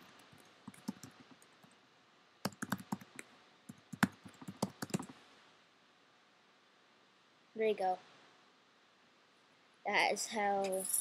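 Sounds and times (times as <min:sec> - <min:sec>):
computer keyboard keys clicking: 0:00.0 - 0:01.8, 0:02.4 - 0:05.2.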